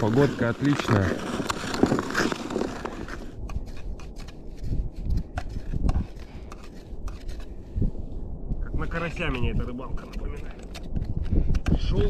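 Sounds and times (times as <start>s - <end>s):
ice skate blades scraping ice: 0.0s - 7.5s
low rumble: 1.5s - 12.0s.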